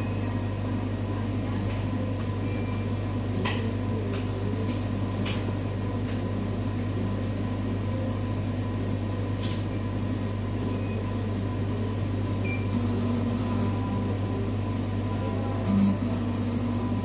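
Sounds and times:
analyzer humming: 10.6s - 17.0s.

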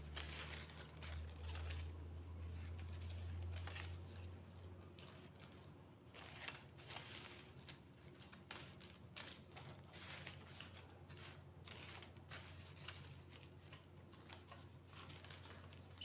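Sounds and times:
dried leaf strips rustling: 0.0s - 16.0s.

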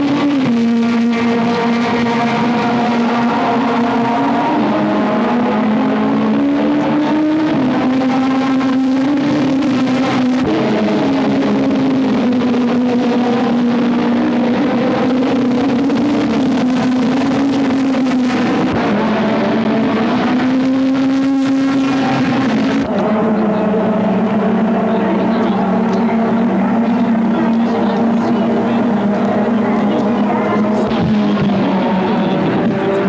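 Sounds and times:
car engine droning: 0.0s - 33.0s.

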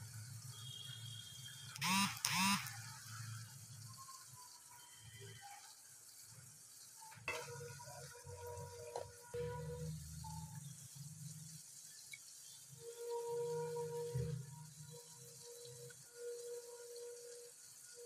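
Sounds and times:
food sizzling in hot oil: 0.0s - 18.0s
short loud pitched calls: 1.8s - 2.7s.

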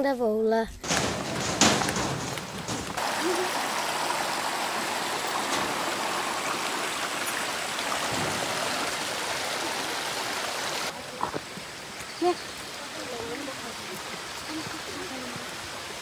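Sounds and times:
stream running over stones: 0.9s - 16.0s.

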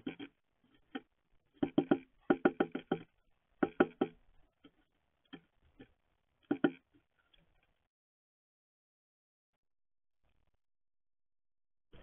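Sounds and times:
bird bill tapping on feeder: 1.6s - 4.2s.

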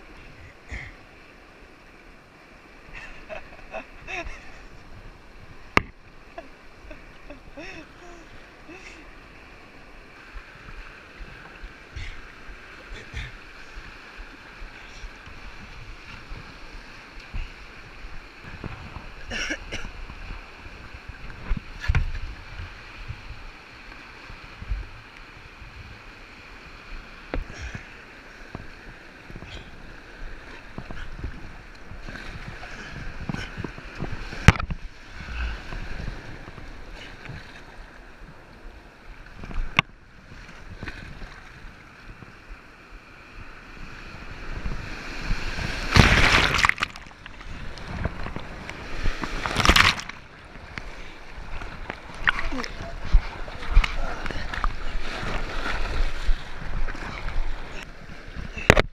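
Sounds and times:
rushing white water: 0.0s - 58.9s
waves breaking over kayak: 0.0s - 58.9s
paddle splashes: 44.4s - 58.9s.

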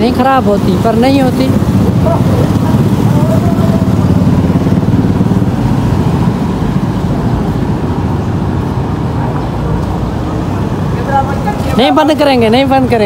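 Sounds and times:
motorcycle engines running: 0.0s - 13.0s.

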